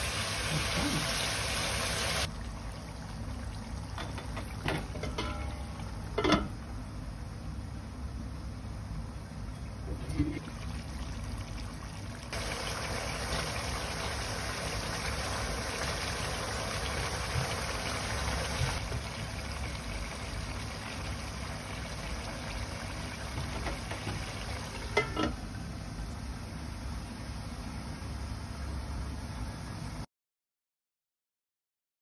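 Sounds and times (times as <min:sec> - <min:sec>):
food bubbling in a pan: 0:00.0 - 0:07.6, 0:08.4 - 0:27.4
lid clinking on pan: 0:04.0 - 0:06.6, 0:24.9 - 0:25.4.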